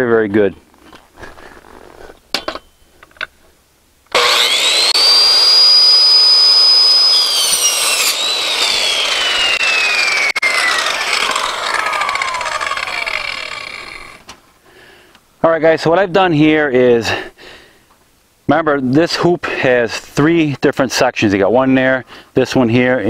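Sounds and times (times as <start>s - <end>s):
circular saw whine: 4.1s - 14.2s
saw blade grinding metal: 4.1s - 14.2s.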